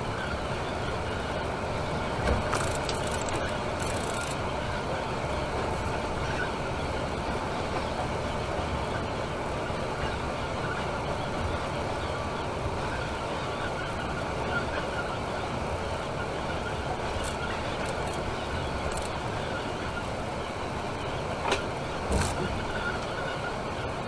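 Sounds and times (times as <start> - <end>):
coach engine and road noise: 0.0 - 24.0.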